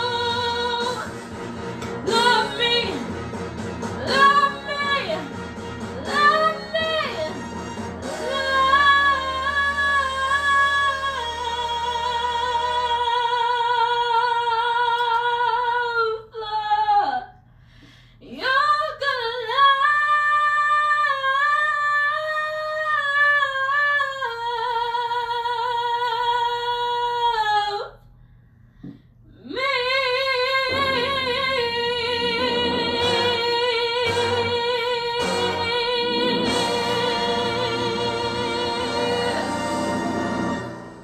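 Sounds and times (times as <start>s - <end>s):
woman singing with vibrato: 0.0s - 1.2s, 2.0s - 3.3s, 3.9s - 17.4s, 18.2s - 28.0s, 29.4s - 41.0s
singer breathing: 17.4s - 18.3s, 28.1s - 29.4s.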